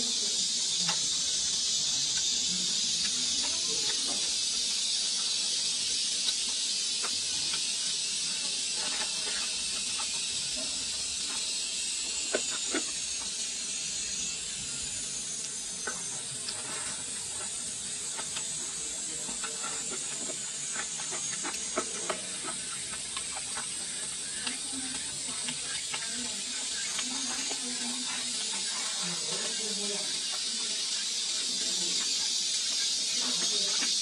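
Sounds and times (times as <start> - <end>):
steady high hiss: 0.0 - 34.0
chewing and wet mouth sounds: 15.4 - 34.0.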